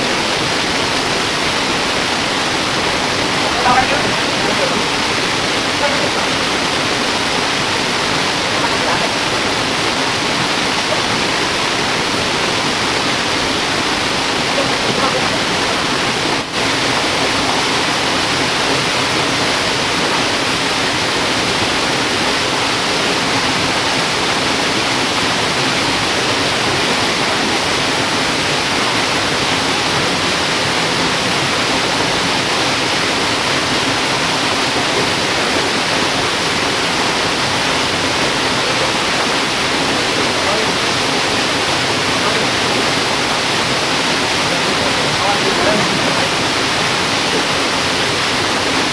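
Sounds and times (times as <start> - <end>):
stream water over rocks: 0.0 - 48.9.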